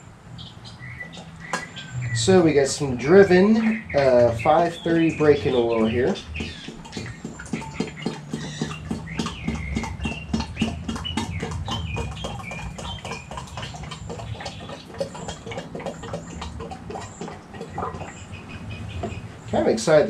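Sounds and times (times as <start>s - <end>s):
high wavering chirps: 0.4s - 15.4s.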